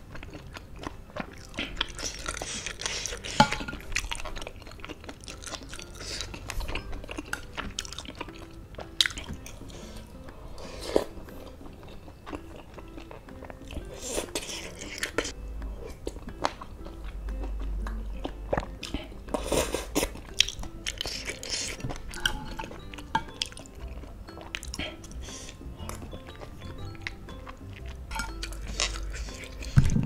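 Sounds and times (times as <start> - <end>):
wet chewing and mouth clicks: 0.0 - 30.0
slurping noodles: 1.4 - 3.6, 9.0 - 11.5, 13.8 - 15.3, 18.9 - 20.2.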